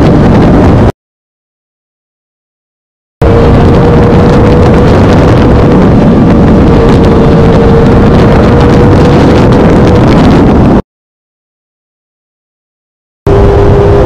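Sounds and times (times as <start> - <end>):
wind rushing on microphone: 0.0 - 0.9, 3.2 - 10.8, 13.3 - 14.0.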